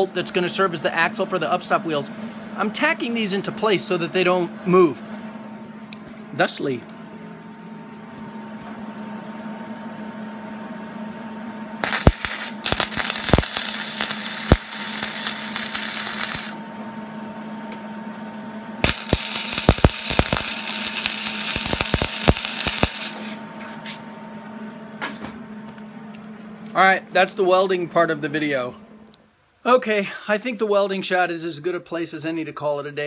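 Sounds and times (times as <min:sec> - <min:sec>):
steady hum: 0:00.0 - 0:30.8
welder crackling sizzle: 0:11.8 - 0:16.6, 0:18.8 - 0:23.4.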